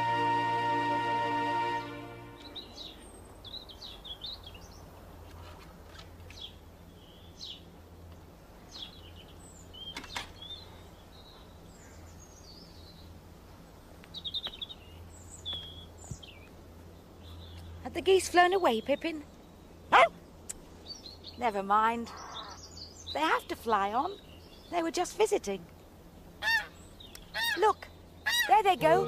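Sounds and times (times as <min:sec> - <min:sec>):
small birds chirping: 0:02.4 - 0:29.0
faint low hum: 0:27.8 - 0:29.0.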